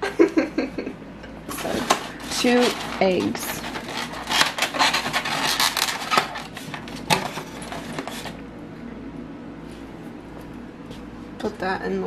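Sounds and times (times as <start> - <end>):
plastic egg carton clicking and rustling: 1.6 - 8.4.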